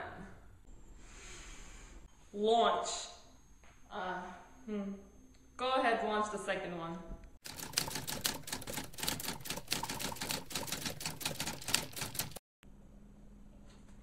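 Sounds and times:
sharp mechanical clacks: 7.4 - 12.4.

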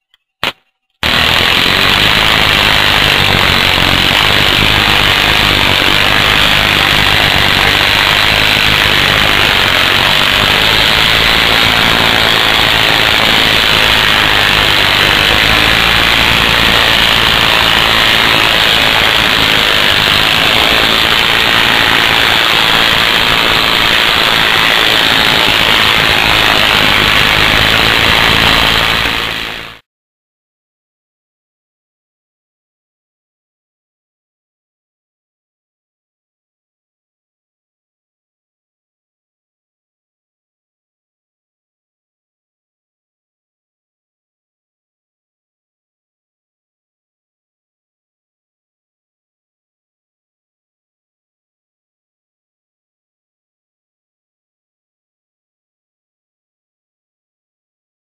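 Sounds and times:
high-voltage sparks crackling: 0.4 - 29.8
spark snaps: 0.4 - 29.8.

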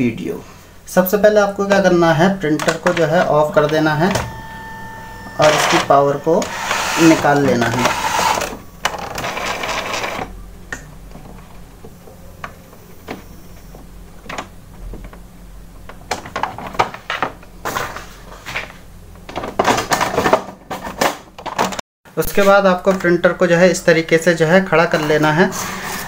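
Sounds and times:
printer clicks and scraping: 2.6 - 10.3.

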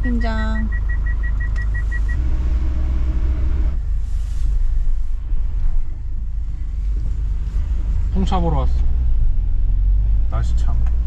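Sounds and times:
high beeps: 0.0 - 2.2
van engine and tyres rumbling: 0.0 - 11.0.

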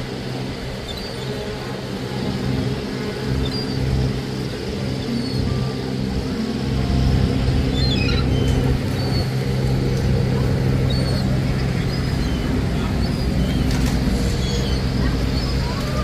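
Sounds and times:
boat engine droning: 0.0 - 16.0
faint high bird calls: 7.7 - 9.6, 10.2 - 16.0.

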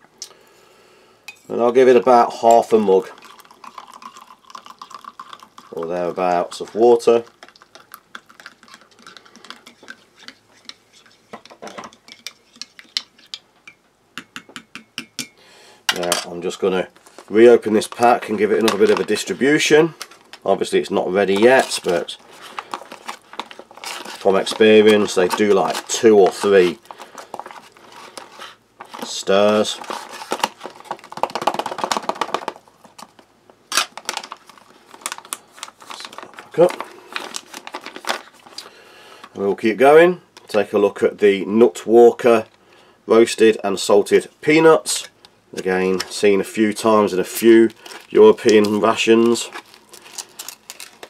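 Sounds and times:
stew being stirred: 2.4 - 15.3
plastic pouch crinkling: 2.7 - 10.0, 16.9 - 38.8, 47.0 - 51.0.

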